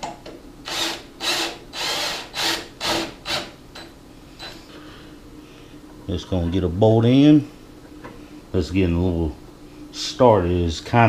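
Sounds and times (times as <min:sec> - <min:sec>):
tool rasping bursts: 0:00.7 - 0:03.5.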